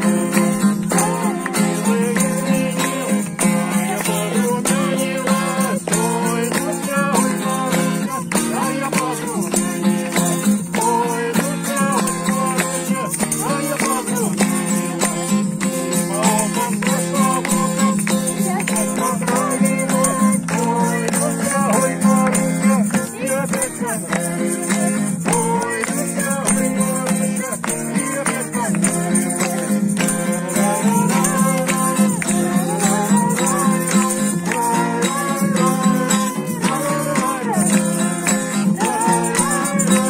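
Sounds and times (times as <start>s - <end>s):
group singing: 0.0s - 40.0s
rattling hand percussion: 0.0s - 40.0s.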